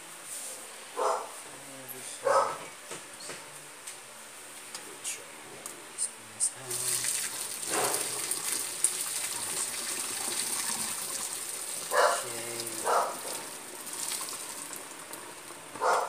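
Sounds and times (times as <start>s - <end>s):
dog barking: 1.0s - 1.4s, 2.2s - 2.7s, 7.7s - 8.1s, 11.9s - 13.4s, 15.8s - 16.0s
water pouring through metal strainer: 6.7s - 15.8s.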